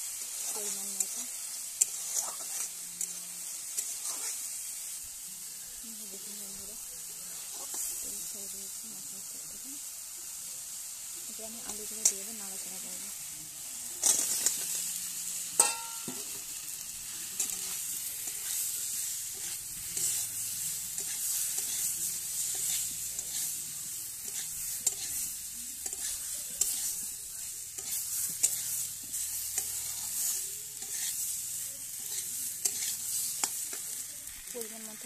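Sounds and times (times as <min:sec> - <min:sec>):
potatoes sizzling in hot oil: 0:00.0 - 0:35.0
metal spatula scraping pan: 0:00.2 - 0:04.6, 0:17.2 - 0:34.0.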